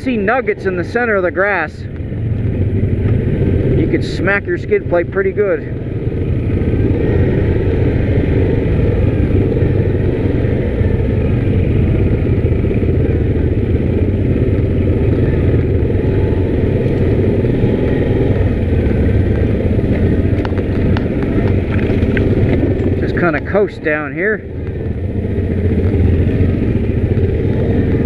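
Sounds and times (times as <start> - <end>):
atv engine running: 0.0 - 28.0.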